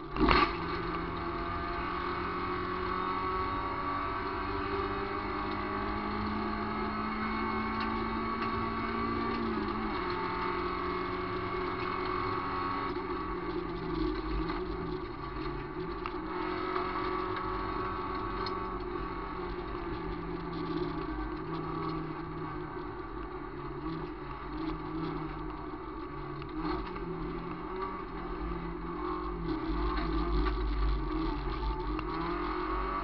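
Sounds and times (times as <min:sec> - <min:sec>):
car engine running hard: 0:00.0 - 0:33.0.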